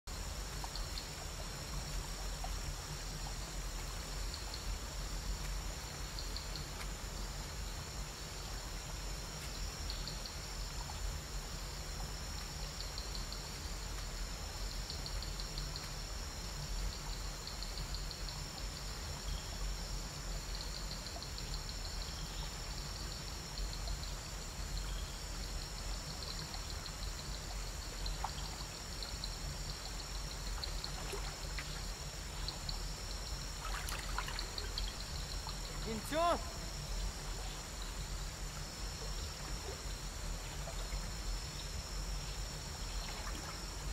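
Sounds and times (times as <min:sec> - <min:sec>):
insect chirping trills: 0:00.1 - 0:43.9
insects shrilling: 0:30.6 - 0:37.9.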